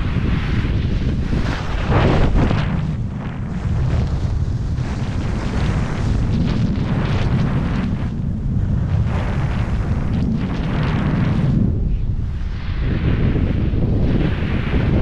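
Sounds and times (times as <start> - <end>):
skis carving on snow: 0.0 - 8.2, 8.8 - 11.7
wind buffeting microphone: 0.0 - 15.0.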